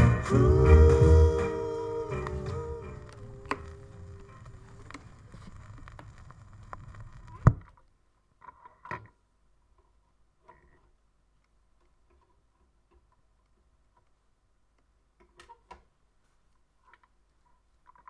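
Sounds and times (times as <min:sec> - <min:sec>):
song ending: 0:00.0 - 0:04.1
record surface noise clicks: 0:01.6 - 0:08.0.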